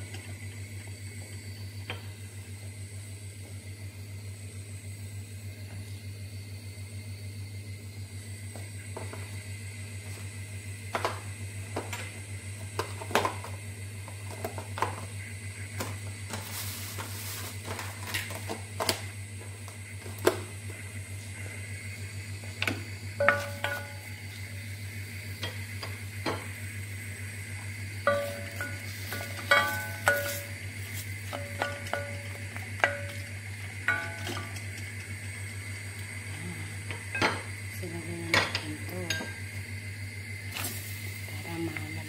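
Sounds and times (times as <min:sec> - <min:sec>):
steady low hum: 0:00.0 - 0:42.0
metallic knocks from pot: 0:23.2 - 0:24.1, 0:28.1 - 0:30.6.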